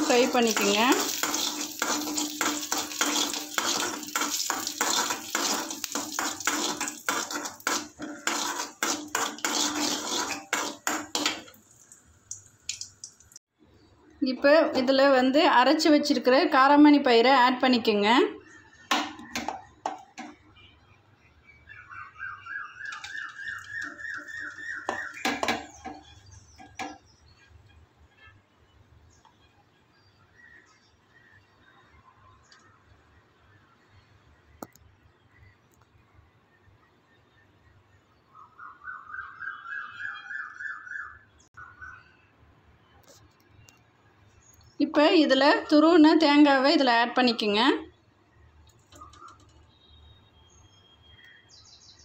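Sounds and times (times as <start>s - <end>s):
steel spoon scraping metal pan: 0.0s - 11.6s.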